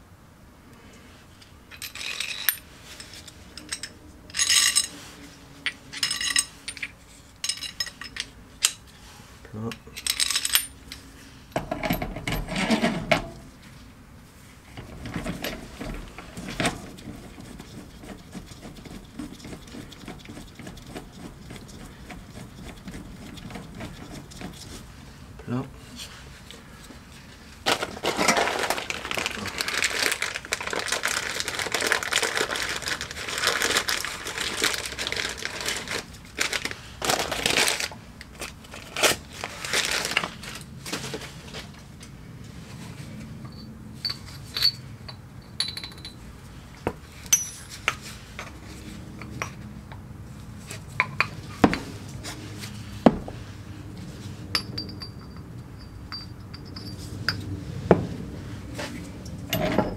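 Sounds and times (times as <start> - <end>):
metal clinks and knocks: 1.7 - 5.0, 5.7 - 8.8, 9.7 - 13.4, 43.4 - 46.3, 47.2 - 48.6, 54.5 - 57.6, 59.3 - 59.9
rustling and rattling: 14.6 - 25.0, 27.2 - 41.9.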